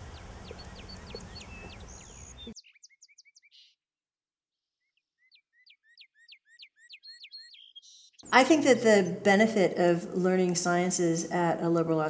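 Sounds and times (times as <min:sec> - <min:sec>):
outdoor hiss: 0:00.0 - 0:02.5
songbirds singing: 0:00.0 - 0:03.8, 0:04.6 - 0:08.5.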